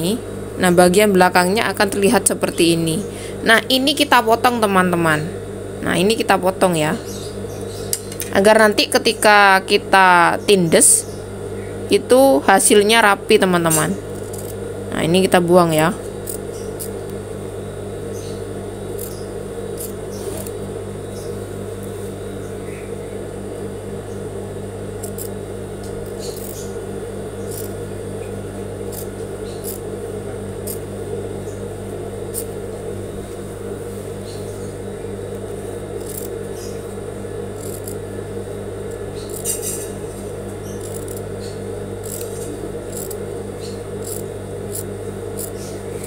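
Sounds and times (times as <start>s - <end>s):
sewing machine motor humming: 13.4s - 14.7s, 18.7s - 20.8s, 24.9s - 31.1s, 31.7s - 33.9s, 34.7s - 45.8s.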